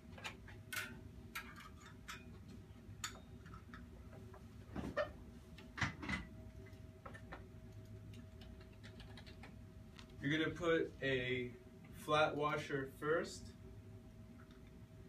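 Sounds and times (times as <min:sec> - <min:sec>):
small bolts clicking and clinking: 0:00.2 - 0:03.9.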